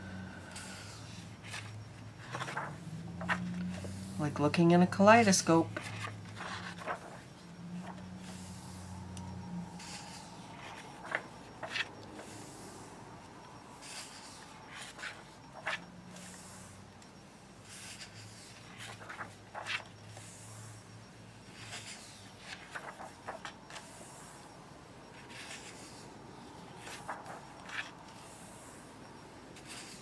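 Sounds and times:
faint low hum: 0:00.0 - 0:30.0
paper pages rustling: 0:00.6 - 0:04.1, 0:05.3 - 0:08.7, 0:09.8 - 0:12.4, 0:13.8 - 0:16.4, 0:17.7 - 0:20.3, 0:21.5 - 0:24.3, 0:25.1 - 0:28.7, 0:29.6 - 0:30.0.

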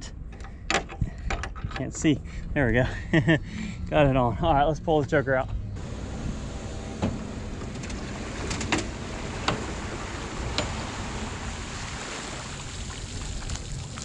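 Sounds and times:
water pouring off boat hull: 0:07.7 - 0:14.0.

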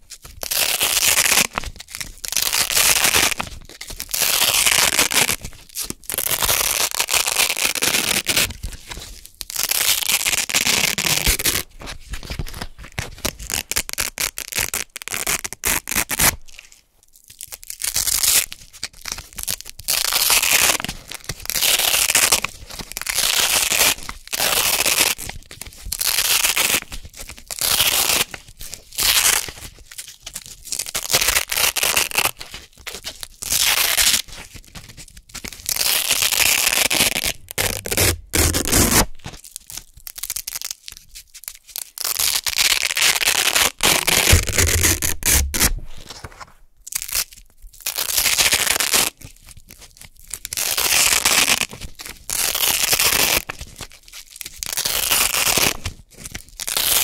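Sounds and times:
velcro tearing apart: 0:00.3 - 0:08.7, 0:09.5 - 0:11.8, 0:12.5 - 0:16.8, 0:17.5 - 0:18.5, 0:19.1 - 0:25.3, 0:26.0 - 0:28.4, 0:29.0 - 0:29.6, 0:30.7 - 0:34.3, 0:35.4 - 0:41.0, 0:41.7 - 0:49.3, 0:50.3 - 0:57.0.

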